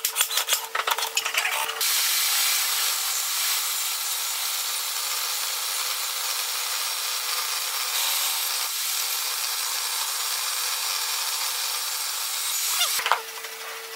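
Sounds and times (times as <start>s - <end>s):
short squeal: 12.5s - 13.0s.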